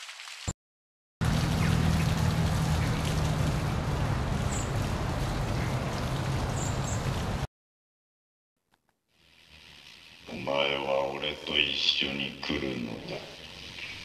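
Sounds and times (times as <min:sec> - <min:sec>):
steady low hum: 0:01.2 - 0:07.5
dense crackling hiss: 0:09.1 - 0:14.0.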